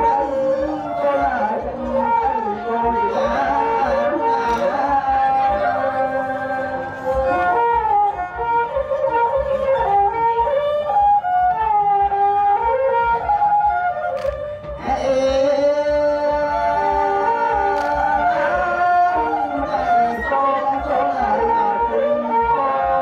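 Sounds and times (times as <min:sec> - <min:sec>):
person singing: 0:00.0 - 0:08.3, 0:14.8 - 0:23.0
steady low beat: 0:00.0 - 0:10.7
reed and bowed instrument melody: 0:00.0 - 0:23.0.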